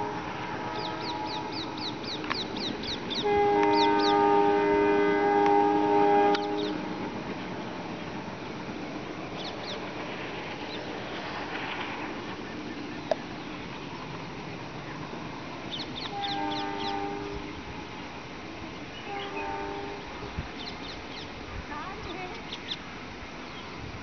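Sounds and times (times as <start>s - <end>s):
locomotive horn blast: 0.0s - 2.2s, 2.8s - 7.2s, 15.8s - 17.8s, 18.9s - 20.4s
distant locomotive rumbling: 0.0s - 24.0s
birds chirping: 0.6s - 4.6s, 6.2s - 6.9s, 8.4s - 10.0s, 12.2s - 18.1s, 18.9s - 23.8s.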